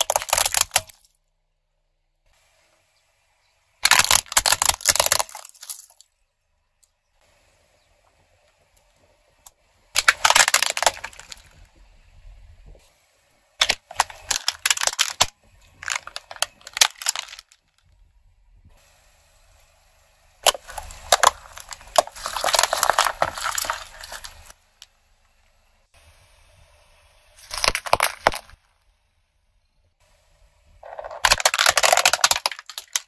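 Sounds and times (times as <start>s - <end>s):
tyre crushing plastic toys and can: 0.0s - 1.2s, 3.8s - 6.1s, 9.9s - 11.7s, 13.6s - 17.8s, 20.4s - 24.9s, 27.4s - 28.6s, 30.8s - 33.0s.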